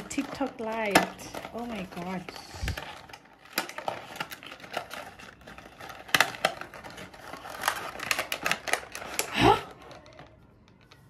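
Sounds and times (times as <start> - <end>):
plastic packaging clicks and taps: 0.0 - 11.0.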